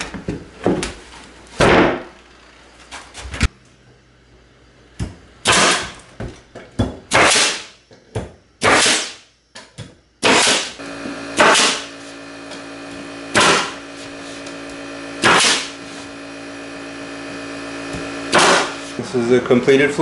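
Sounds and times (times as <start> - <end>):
nail gun shots with air hiss: 5.4 - 6.0, 7.1 - 7.8, 8.6 - 9.3, 10.2 - 10.8, 11.4 - 11.9, 13.3 - 13.8, 15.2 - 15.8, 18.3 - 18.8
air compressor motor hum: 10.2 - 20.0.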